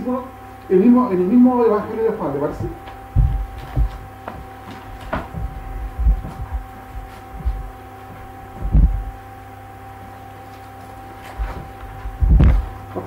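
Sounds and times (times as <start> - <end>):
steady electrical hum: 0.0 - 13.0
soft low thumps and knocks: 2.4 - 9.4, 11.4 - 13.0.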